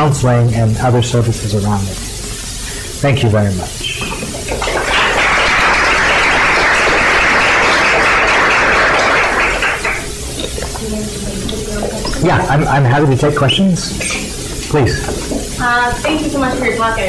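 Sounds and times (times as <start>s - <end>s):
audience applauding: 4.2s - 10.2s.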